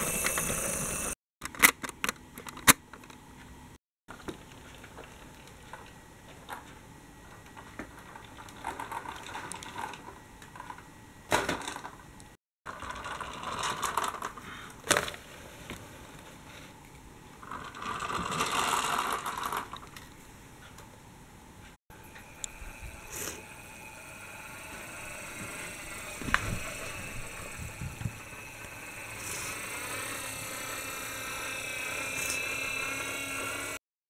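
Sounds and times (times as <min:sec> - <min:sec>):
toy vehicles whirring and rattling: 0:00.0 - 0:01.2, 0:12.7 - 0:15.2, 0:17.4 - 0:20.0, 0:22.4 - 0:33.8.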